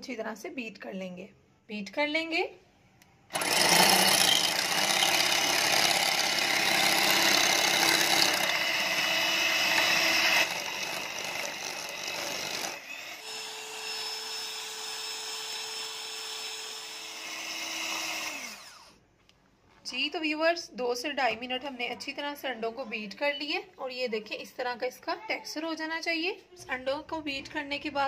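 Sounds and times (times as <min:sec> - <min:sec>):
electric hand mixer whirring: 0:03.3 - 0:19.0.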